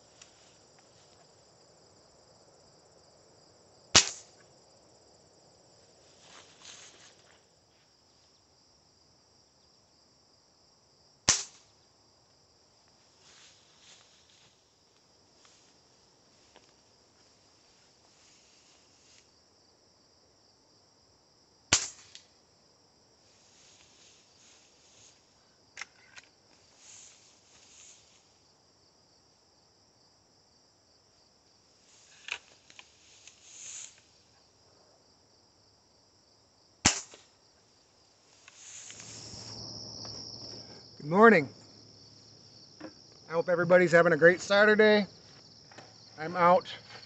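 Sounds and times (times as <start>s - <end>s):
insects chorus: 0.0s - 47.0s
air rifle shots: 4.0s - 4.3s, 11.3s - 11.6s, 21.7s - 22.2s, 36.8s - 37.2s.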